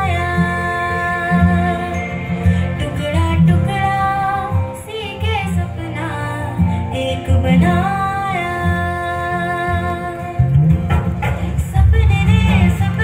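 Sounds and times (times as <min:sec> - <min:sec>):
strong bass accompaniment: 0:10.4 - 0:13.0.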